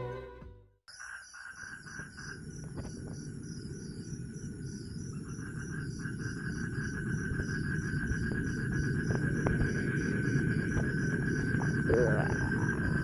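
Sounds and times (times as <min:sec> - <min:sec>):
pulsing cricket chirp: 0:00.9 - 0:13.0
very high insect trill: 0:00.9 - 0:13.0
low rumbling noise: 0:03.3 - 0:13.0.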